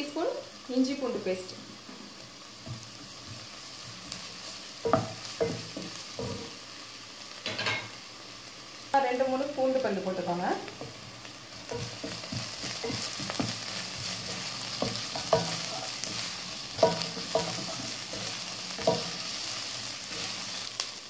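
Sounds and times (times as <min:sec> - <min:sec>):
food sizzling in hot oil: 0:00.0 - 0:21.0
spatula stirring and scraping: 0:02.6 - 0:06.6, 0:10.8 - 0:20.7
spatula knocking against pan: 0:11.7 - 0:13.6, 0:14.7 - 0:17.8, 0:18.8 - 0:19.3.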